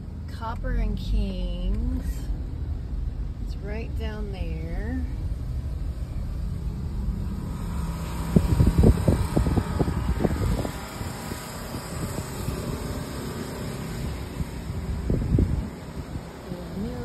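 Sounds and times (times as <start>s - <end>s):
car interior road rumble: 0.0s - 17.0s.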